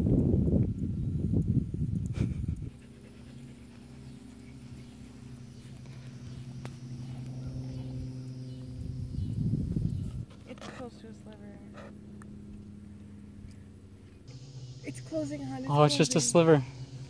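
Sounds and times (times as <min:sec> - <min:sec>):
low hum with pitched tones: 0:00.0 - 0:17.0
dog panting: 0:02.1 - 0:06.2, 0:10.4 - 0:11.0, 0:11.6 - 0:12.0.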